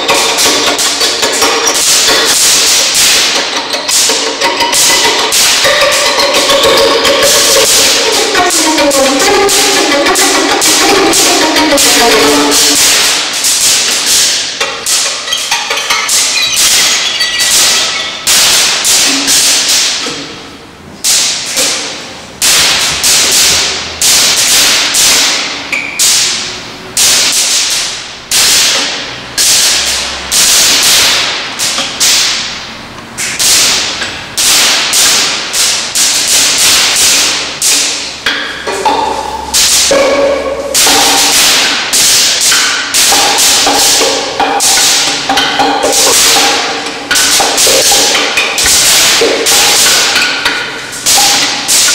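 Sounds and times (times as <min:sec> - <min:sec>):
violin scratchy bow strikes: 0:00.0 - 0:20.2, 0:38.2 - 0:51.9.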